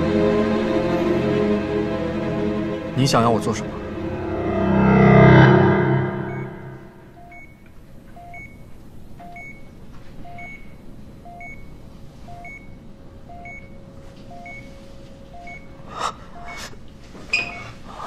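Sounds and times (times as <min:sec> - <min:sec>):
patient monitor beeping: 0:07.2 - 0:07.6, 0:08.2 - 0:16.8, 0:17.4 - 0:17.8.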